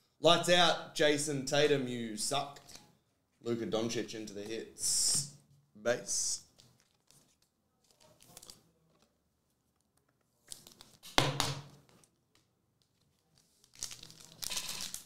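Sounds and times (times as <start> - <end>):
foil wrapper tearing: 7.8 - 8.6, 13.6 - 15.0
sharp knock: 11.2 - 11.7.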